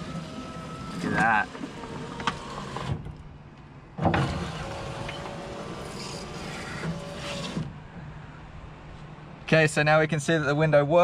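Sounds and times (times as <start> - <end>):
power window motor whining: 0.0 - 3.1, 4.0 - 7.8.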